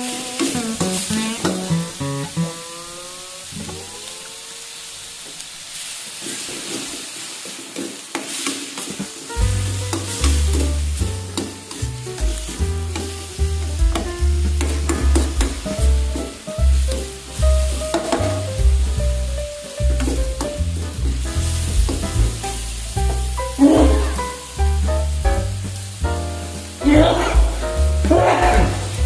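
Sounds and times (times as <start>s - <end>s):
food sizzling in a frying pan: 0.0s - 29.0s
background music: 9.2s - 29.0s
deep bass: 9.4s - 29.0s
metal spatula scraping a pan: 17.8s - 18.6s.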